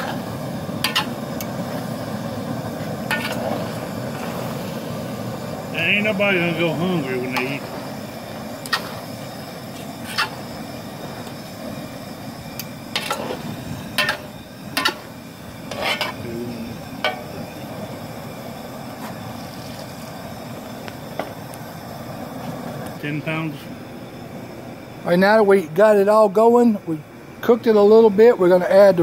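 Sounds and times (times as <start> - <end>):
gas burner rushing: 0.0 - 29.0
metal spoon scraping a pot: 0.8 - 1.2, 3.1 - 3.5, 8.6 - 9.0, 10.0 - 10.4, 13.0 - 13.4, 14.0 - 15.0, 15.7 - 16.2.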